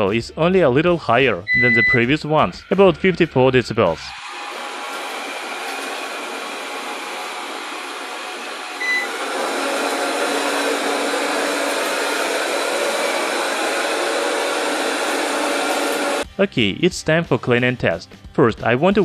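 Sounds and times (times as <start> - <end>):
short beep: 1.5 - 2.1, 8.8 - 9.1.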